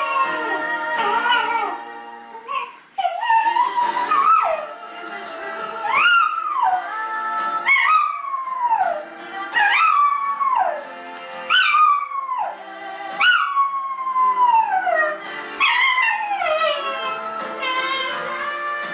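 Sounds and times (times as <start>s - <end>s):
dog howling: 0.0s - 4.8s, 7.6s - 10.9s, 11.5s - 12.6s, 13.2s - 18.2s
pop song: 0.0s - 18.9s.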